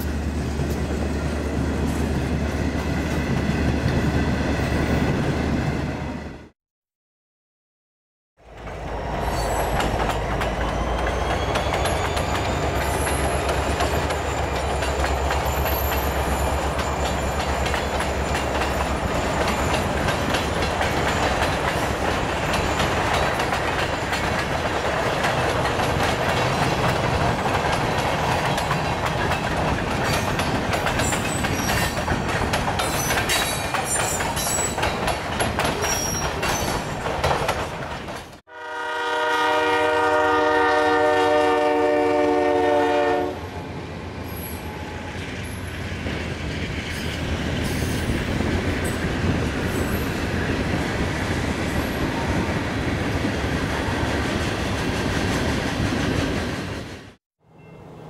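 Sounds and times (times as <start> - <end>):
freight train rumble and rattle: 0.0 - 6.3, 8.5 - 57.2
wheels clicking over rail joints: 8.6 - 38.4.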